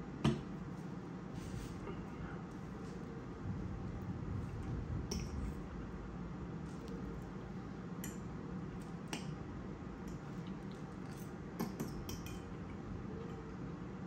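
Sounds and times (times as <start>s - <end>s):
low background hum: 0.0s - 14.0s
fork clinking on ceramic bowl: 11.6s - 12.6s.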